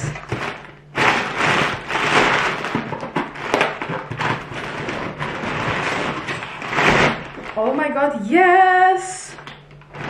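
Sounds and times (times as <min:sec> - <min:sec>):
packing paper rustling and crinkling: 0:00.0 - 0:07.8, 0:09.7 - 0:10.0.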